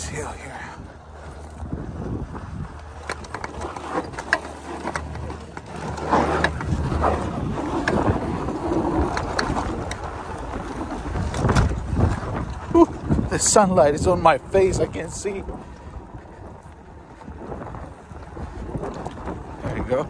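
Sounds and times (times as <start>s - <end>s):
low rumble: 0.0s - 20.0s
tyres on dirt and gravel: 0.0s - 20.0s
chassis clicks and knocks: 2.7s - 10.5s.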